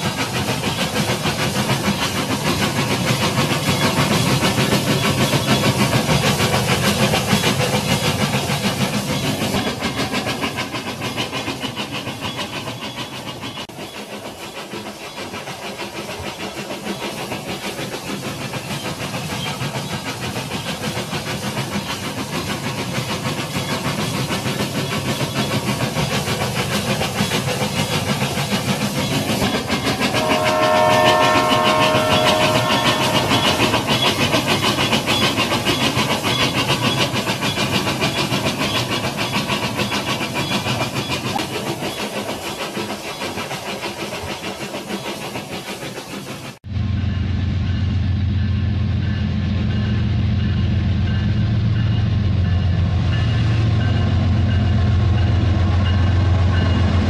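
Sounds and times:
toy train rattling on track: 0.0s - 46.4s
toy steam locomotive whistle: 29.6s - 37.1s.

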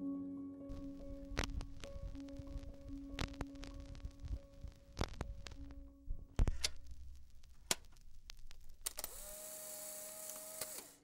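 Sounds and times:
camera mechanical clicks: 8.8s - 11.0s
camera motor whirring: 8.8s - 11.0s.

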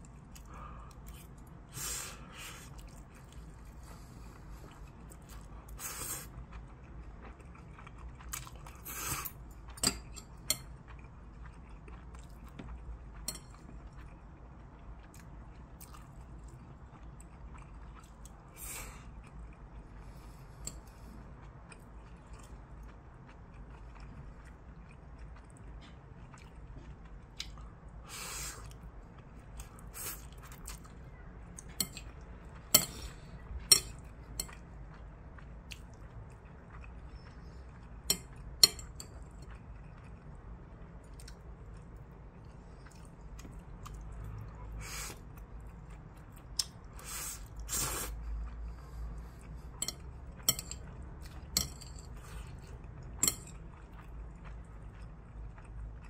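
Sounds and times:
chewing: 0.0s - 56.0s
chopsticks clicking on ceramic bowl: 38.1s - 39.1s, 49.8s - 50.8s
slurping noodles: 47.0s - 48.2s.

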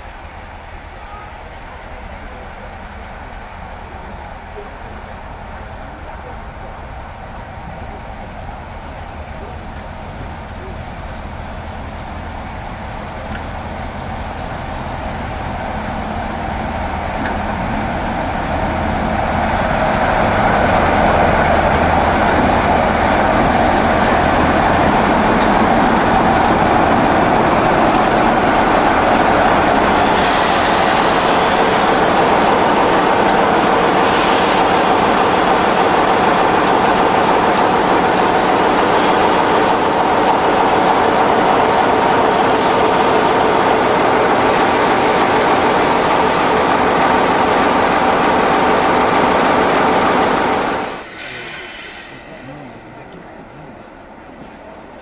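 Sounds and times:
diesel locomotive engine running: 0.0s - 55.0s
high-pitched squeals: 38.0s - 44.6s.

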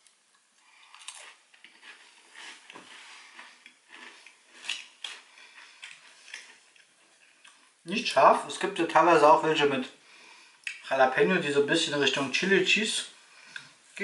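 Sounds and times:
crunchy cracker chewing: 0.0s - 7.8s.

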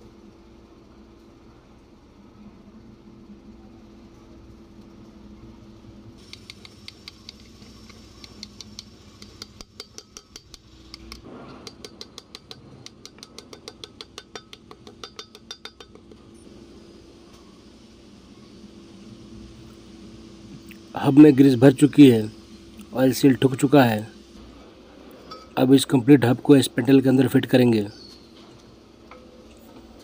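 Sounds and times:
hammer tapping metal: 6.2s - 16.2s.

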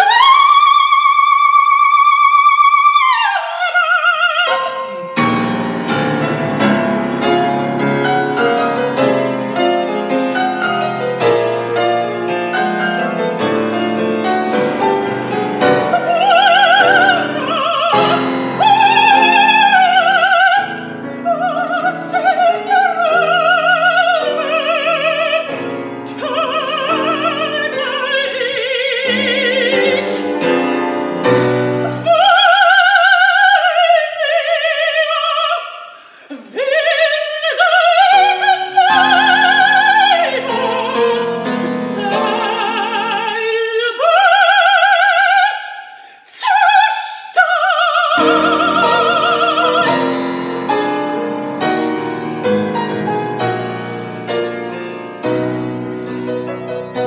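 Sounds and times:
soprano singing opera: 0.0s - 6.0s, 14.3s - 51.2s
piano accompaniment: 4.0s - 35.4s, 36.7s - 45.5s, 47.6s - 57.0s.

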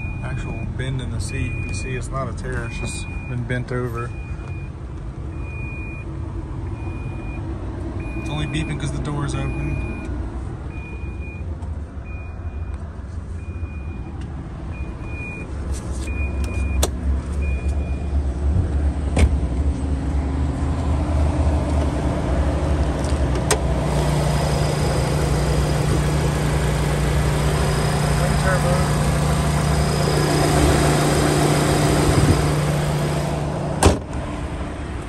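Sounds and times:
car engine idling: 21.0s - 35.0s.

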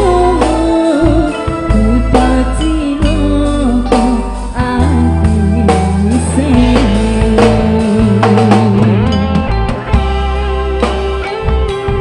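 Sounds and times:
woman singing: 0.0s - 9.4s
live pop band playing: 0.0s - 12.0s.

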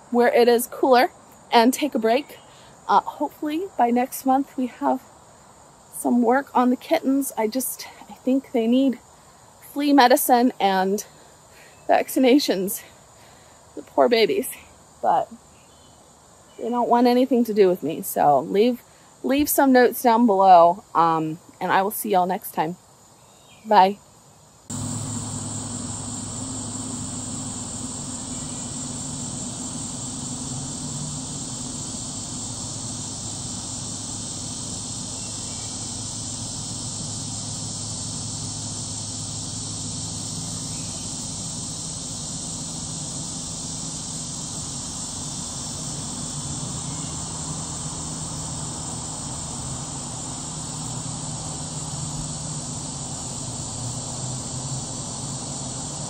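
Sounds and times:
insects buzzing: 0.0s - 56.0s
low mechanical hum: 24.7s - 56.0s.

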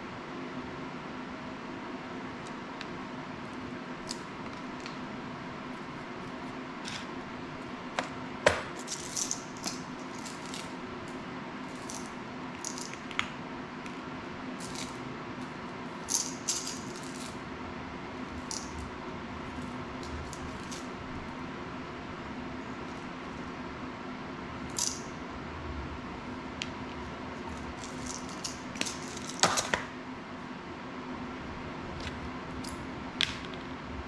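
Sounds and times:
room hum: 0.0s - 34.0s
small parts clicking: 8.8s - 10.7s, 11.7s - 13.3s, 16.0s - 17.4s, 18.4s - 18.8s, 24.7s - 25.0s.

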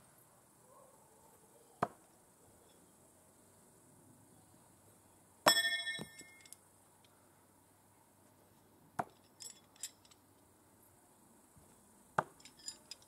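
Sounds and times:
knife striking target clang: 5.5s - 6.4s.

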